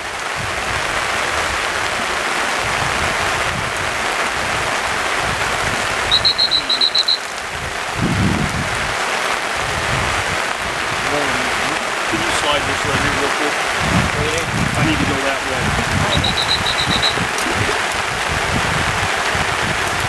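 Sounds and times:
steady rain: 0.0s - 20.0s
short high chirps: 6.1s - 7.2s, 16.1s - 17.2s.

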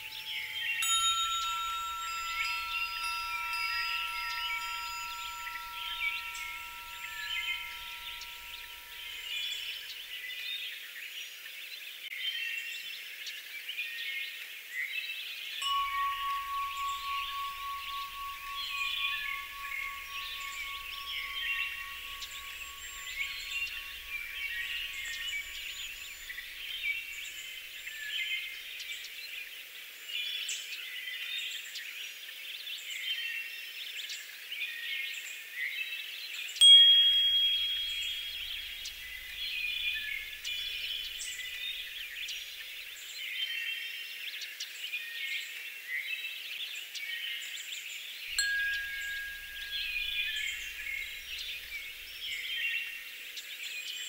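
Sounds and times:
bright chime strike: 0.0s - 9.7s, 15.6s - 27.2s, 36.6s - 41.9s, 48.4s - 52.8s
soft low chime tone: 0.0s - 10.1s, 15.6s - 28.6s, 36.6s - 42.8s, 48.3s - 53.1s
high chirping and tinkling: 0.0s - 10.4s, 15.6s - 28.9s, 36.6s - 43.0s, 48.3s - 53.3s.

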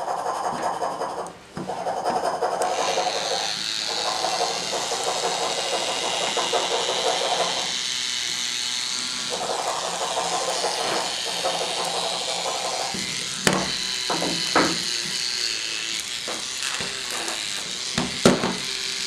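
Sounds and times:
brushes rattling and scraping paper: 0.0s - 7.8s, 9.1s - 15.3s
small electric motor whirring: 2.0s - 19.0s
high motor whine: 2.6s - 19.0s.

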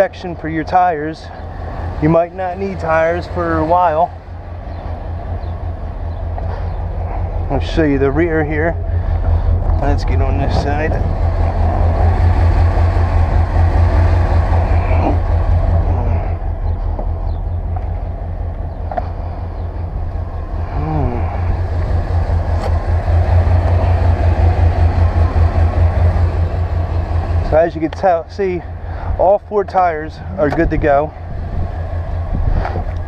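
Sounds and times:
pickup truck engine idling: 0.0s - 33.0s.

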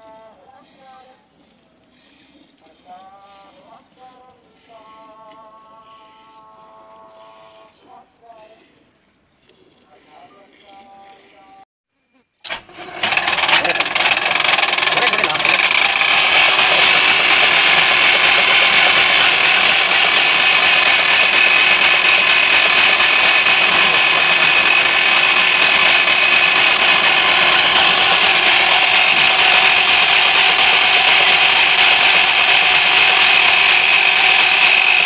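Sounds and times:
chaff cutter running: 0.0s - 8.0s, 12.4s - 35.0s
high whine: 12.8s - 35.0s.

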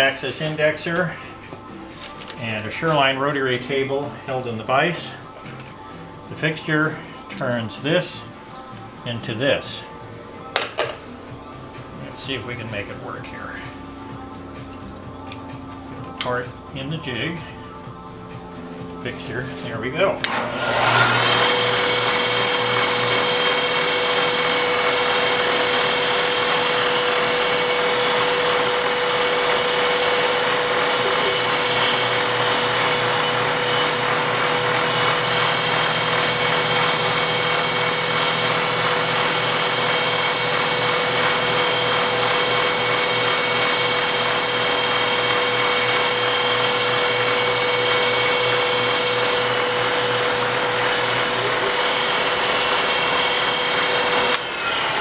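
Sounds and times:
milling machine cutting metal: 20.2s - 55.0s.

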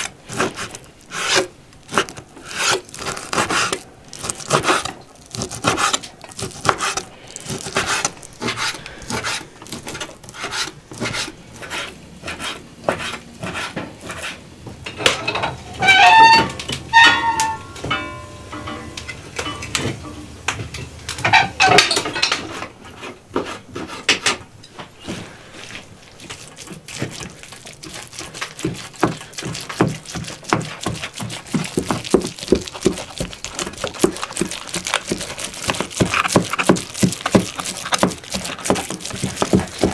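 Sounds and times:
knife chopping on wooden board: 0.3s - 14.3s
metal pots clattering: 14.8s - 22.8s.

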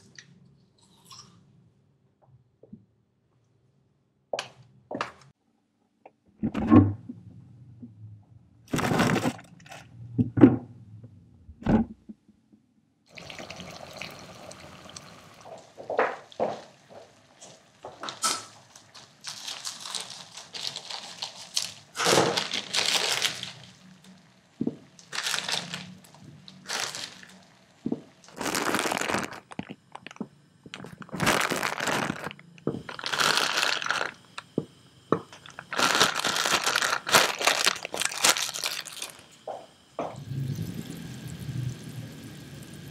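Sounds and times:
plastic crinkling: 8.7s - 9.5s, 18.0s - 23.9s, 24.9s - 34.4s, 35.3s - 39.4s
water heating in a saucepan: 13.1s - 19.3s, 39.1s - 42.9s
scissors snipping plastic bag: 18.2s - 23.6s, 35.5s - 39.2s.

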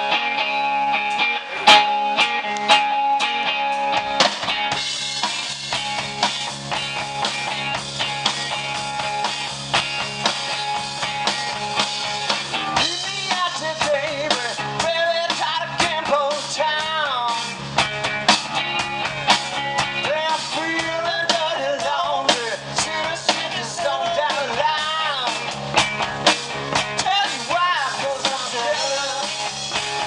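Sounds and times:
rock band playing: 0.0s - 30.0s
man singing into microphone: 12.8s - 17.6s, 20.0s - 25.5s, 27.0s - 29.5s.

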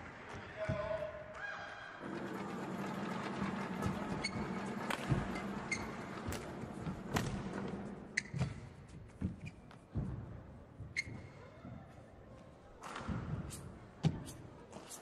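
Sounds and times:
shoes squeaking on court: 3.8s - 10.1s, 10.8s - 11.6s.

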